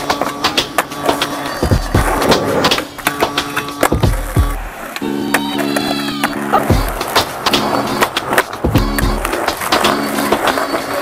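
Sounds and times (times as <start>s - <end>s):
skateboard wheels on pavement: 0.0s - 11.0s
drum beat: 0.1s - 4.7s, 6.5s - 10.5s.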